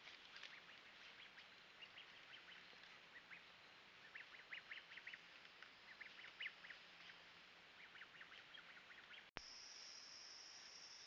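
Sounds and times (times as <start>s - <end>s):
forest hiss: 9.4s - 11.0s.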